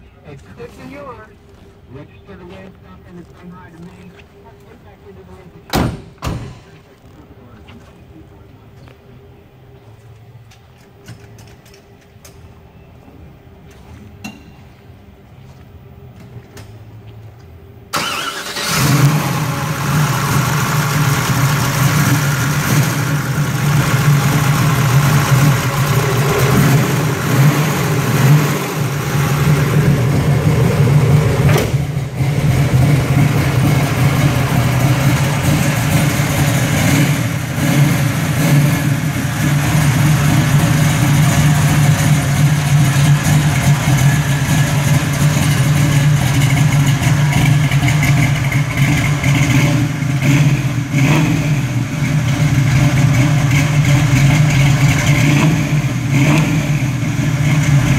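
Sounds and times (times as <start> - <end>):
car engine starting and idling: 15.5 - 57.9.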